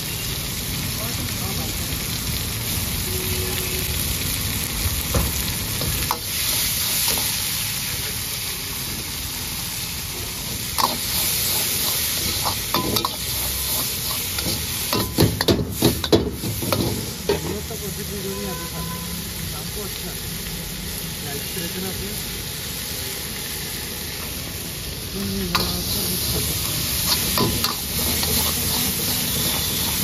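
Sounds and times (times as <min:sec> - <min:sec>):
vegetables sizzling in a wok: 0:00.0 - 0:30.0
metal ladle scraping wok: 0:10.7 - 0:17.5, 0:25.5 - 0:30.0.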